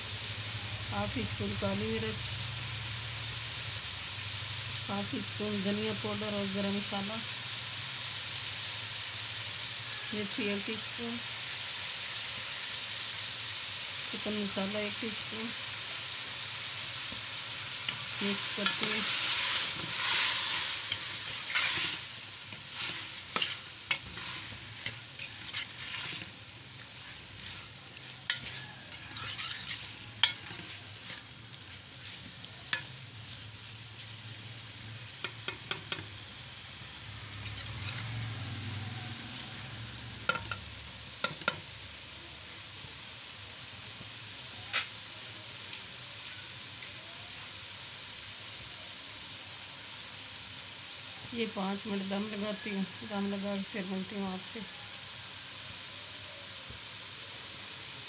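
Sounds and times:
vegetables sizzling in a wok: 0:00.0 - 0:58.0
metal spoon clinking against pan: 0:30.2 - 0:30.6, 0:40.3 - 0:41.6.

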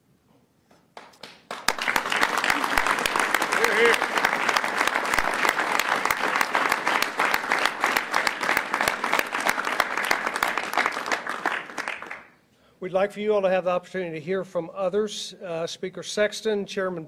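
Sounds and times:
crowd applauding: 0:01.0 - 0:12.3.

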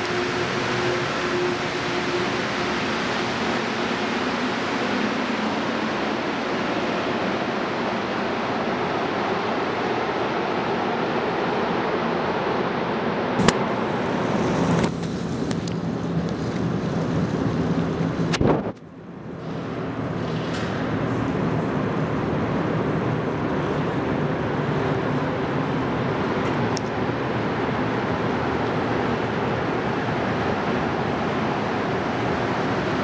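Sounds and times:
metro train rumble in tunnel: 0:00.0 - 0:33.0.

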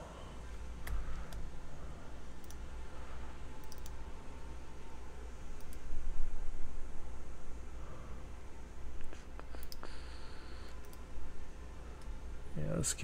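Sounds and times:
steady low hum: 0:00.0 - 0:13.0
computer mouse clicks: 0:02.4 - 0:02.6, 0:03.6 - 0:04.0, 0:05.6 - 0:05.9, 0:09.0 - 0:10.0, 0:10.7 - 0:11.1.

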